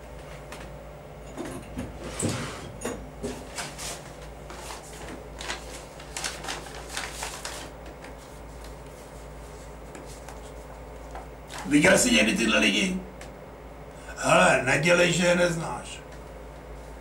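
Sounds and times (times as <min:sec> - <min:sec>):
low room hum: 0:00.0 - 0:17.0
paper rustling: 0:03.5 - 0:11.8.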